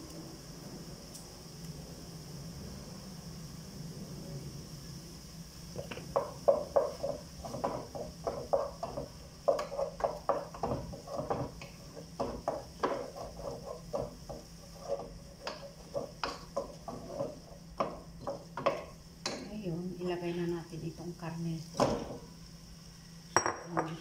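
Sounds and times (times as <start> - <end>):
wooden spoon knocking metal pot: 5.8 - 19.5.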